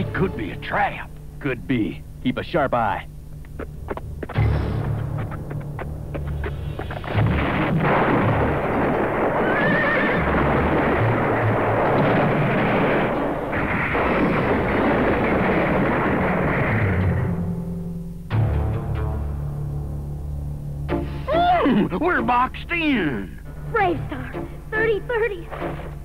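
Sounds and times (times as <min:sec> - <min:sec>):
low background music: 0:00.0 - 0:02.3, 0:03.7 - 0:08.3, 0:17.0 - 0:26.0
rocks tumbling: 0:03.9 - 0:17.1
horse whinnying: 0:09.4 - 0:10.4.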